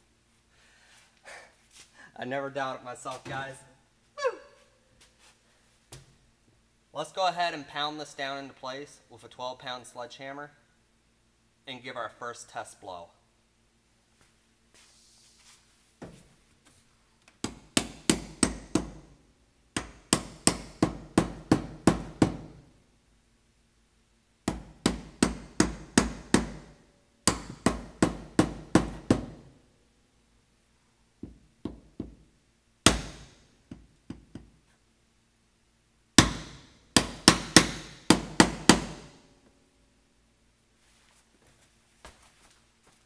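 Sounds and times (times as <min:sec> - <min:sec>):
hammer tapping metal valve: 0:24.5 - 0:26.6.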